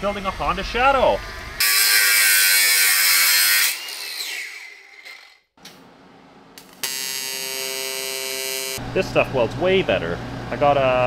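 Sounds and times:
bench grinder grinding metal: 0:01.6 - 0:05.4, 0:06.8 - 0:08.8
welding arc buzzing: 0:06.6 - 0:08.8.

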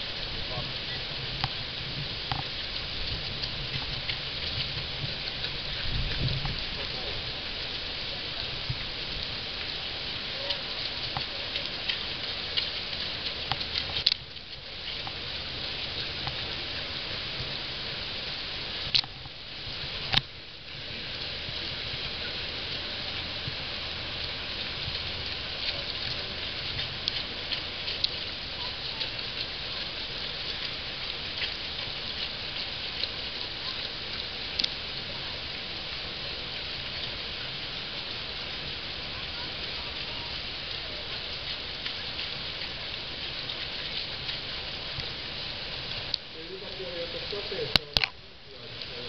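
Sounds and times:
heavy rain: 0:00.0 - 0:49.0
raindrop ticks: 0:00.0 - 0:49.0.

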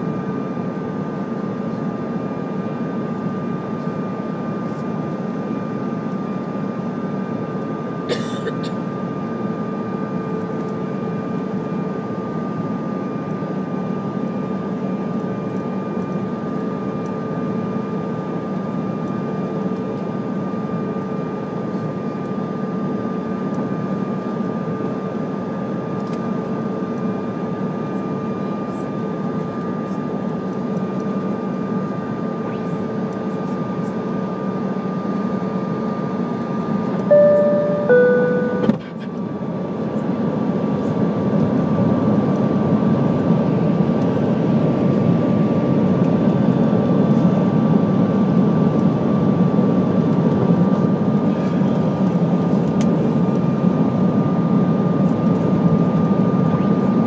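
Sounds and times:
jet engine whine: 0:00.0 - 0:57.0
two-tone cabin chime: 0:37.1 - 0:38.8.

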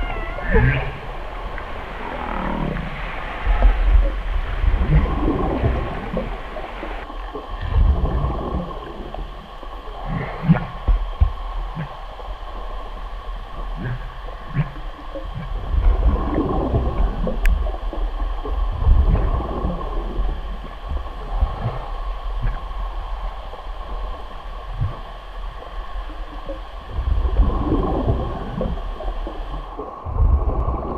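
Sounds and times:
whale calling: 0:00.0 - 0:10.9, 0:13.6 - 0:22.8
steady hum: 0:00.0 - 0:30.9.

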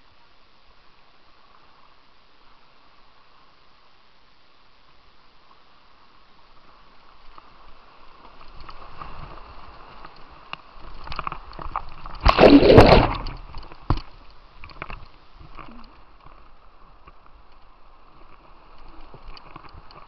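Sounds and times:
water sloshing and gurgling: 0:11.6 - 0:13.7
loud splash over boat: 0:12.2 - 0:13.4.

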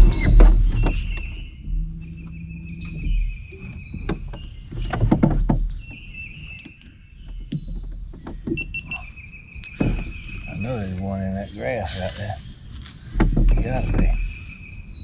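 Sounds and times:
knocks in a boat: 0:00.0 - 0:09.0, 0:09.7 - 0:11.1, 0:13.1 - 0:14.4.

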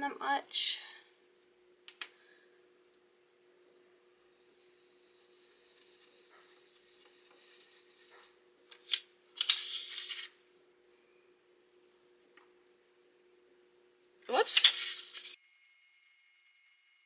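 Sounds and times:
scratchy brush strokes: 0:04.0 - 0:08.4
brisk brush scrubbing: 0:04.1 - 0:08.4
brush hissing over stencil: 0:04.1 - 0:08.4.

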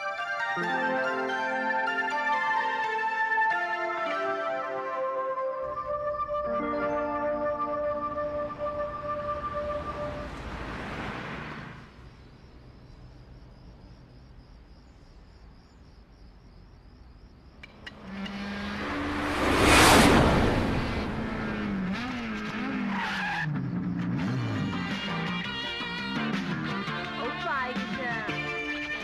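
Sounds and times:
sports car engine: 0:17.6 - 0:25.1.

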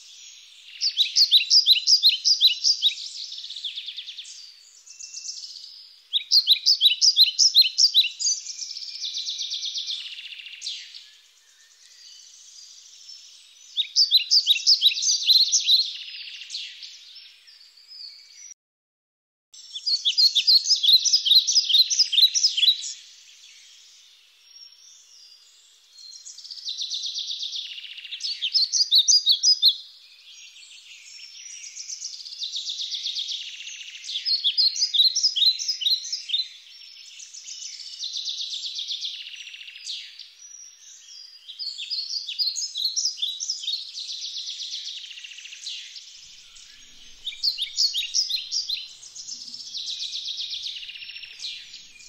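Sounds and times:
birds chirping: 0:45.5 - 0:52.0.

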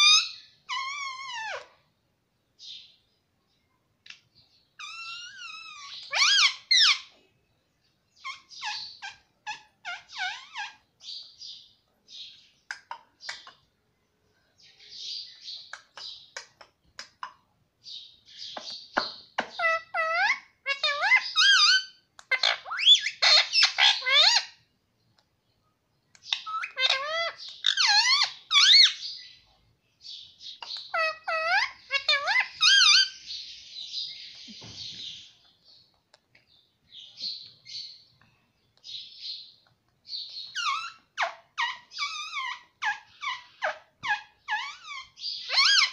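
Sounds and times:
parakeet chattering: 0:04.8 - 0:07.2, 0:08.2 - 0:11.3, 0:18.4 - 0:24.6, 0:26.2 - 0:29.1, 0:30.4 - 0:33.3, 0:40.1 - 0:45.9.

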